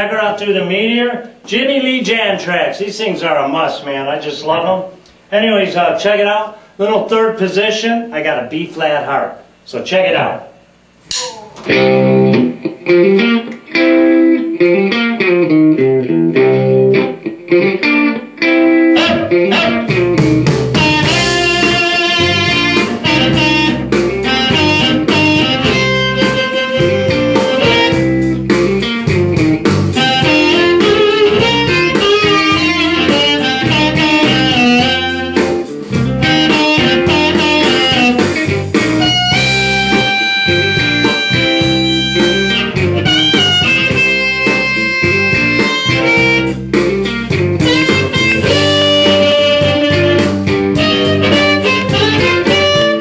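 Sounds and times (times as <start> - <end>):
blues backing track with guitar: 11.0 - 53.0
amplified blues harmonica: 11.4 - 53.0.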